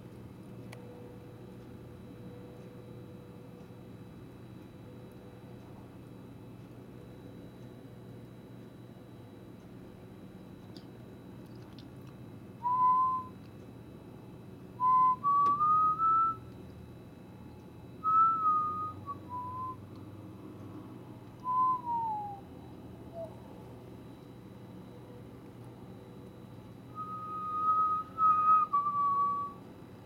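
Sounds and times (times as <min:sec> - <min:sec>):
person whistling slow tune: 0:12.6 - 0:13.4, 0:14.8 - 0:16.5, 0:18.0 - 0:20.0, 0:21.4 - 0:23.5, 0:26.9 - 0:29.6.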